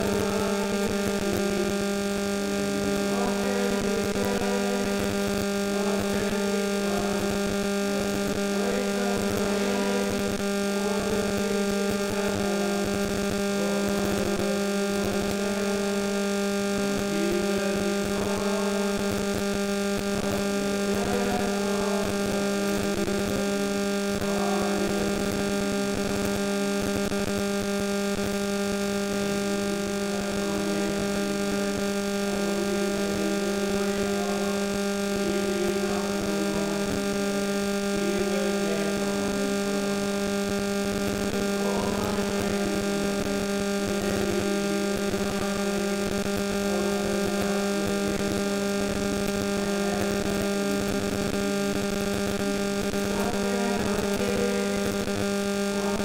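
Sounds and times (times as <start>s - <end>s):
buzzy mains hum: 0.0s - 56.0s.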